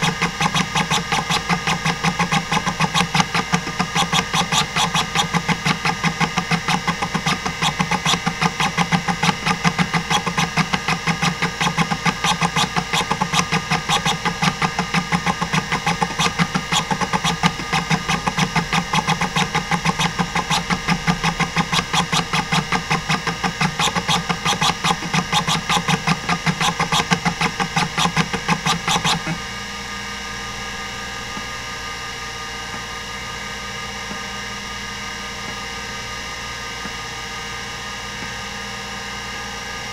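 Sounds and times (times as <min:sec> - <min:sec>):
hard drive head clicks: 0:00.0 - 0:29.4
hard drive spindle hum: 0:00.0 - 0:39.9.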